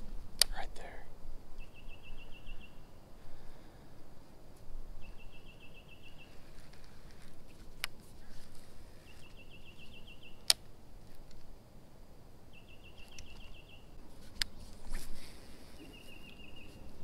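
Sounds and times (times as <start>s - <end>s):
songbird trill: 0.0s - 3.8s, 5.0s - 7.2s, 8.2s - 10.7s, 12.5s - 17.0s
sharp clicks: 10.4s - 11.5s, 13.0s - 13.5s.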